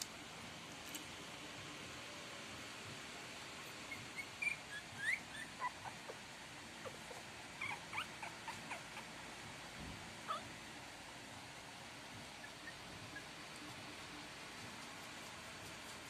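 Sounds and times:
puppies squeaking and whimpering: 3.8s - 9.2s, 10.3s - 10.5s.

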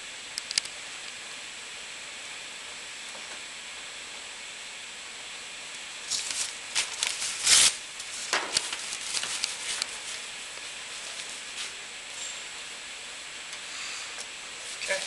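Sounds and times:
paper crinkling and rustling: 6.1s - 10.3s
paper towel tearing: 6.1s - 10.3s.

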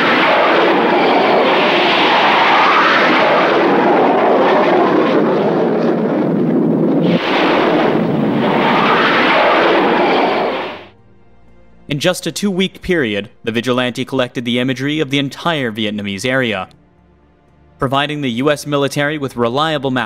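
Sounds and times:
loud jet engine roar: 0.0s - 10.9s.

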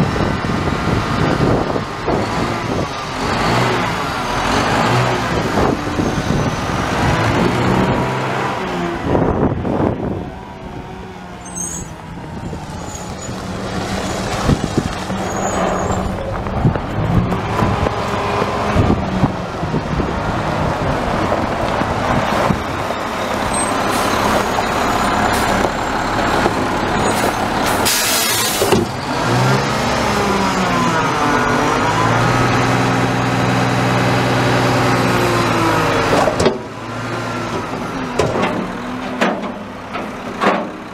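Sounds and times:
garbage truck diesel engine revving: 0.0s - 40.9s
loud air hiss: 27.8s - 28.7s
hydraulic arms lifting dumpster: 35.1s - 40.9s.

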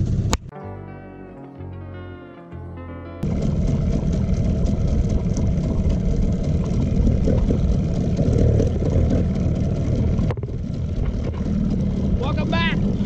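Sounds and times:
outboard motor running: 3.2s - 13.0s.

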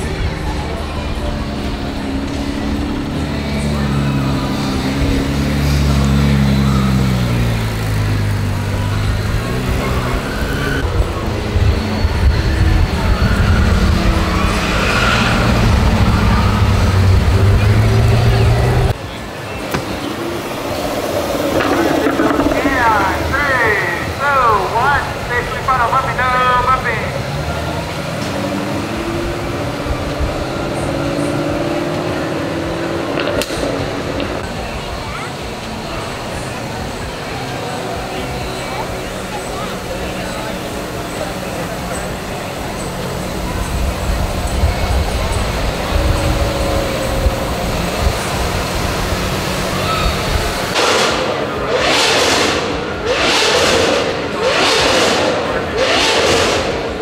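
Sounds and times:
sports car engine passing: 0.0s - 57.0s.

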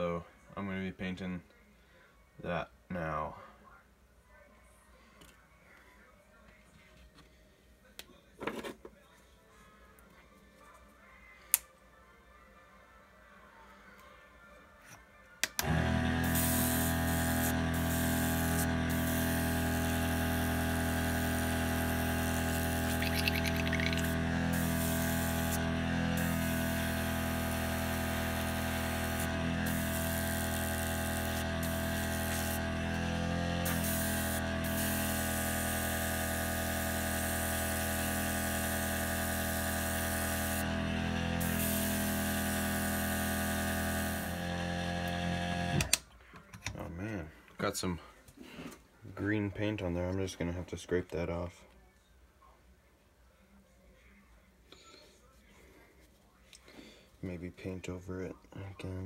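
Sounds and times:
compressor motor hum: 15.6s - 46.0s
airbrush hissing: 22.6s - 25.5s.

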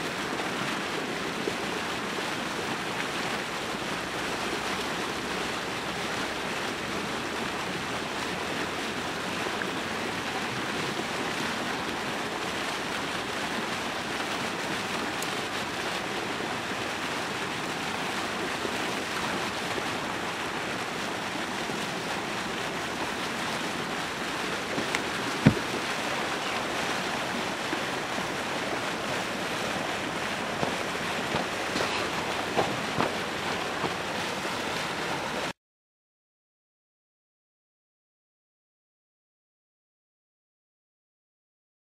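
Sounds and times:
water splashing against ice: 14.4s - 16.2s, 21.7s - 35.4s
sharp knock: 25.4s - 25.7s.

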